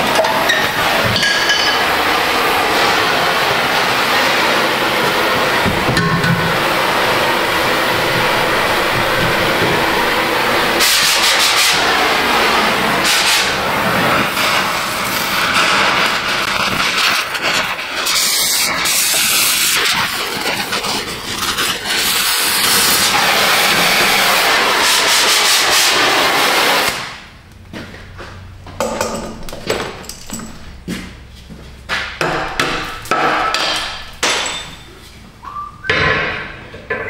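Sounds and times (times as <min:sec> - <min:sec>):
cutting torch hissing: 0:00.0 - 0:27.2.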